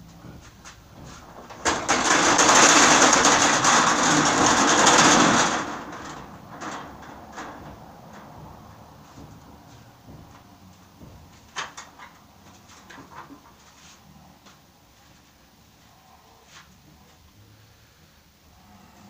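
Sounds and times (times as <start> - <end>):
metal shutter slats rattling: 0.8 - 13.5.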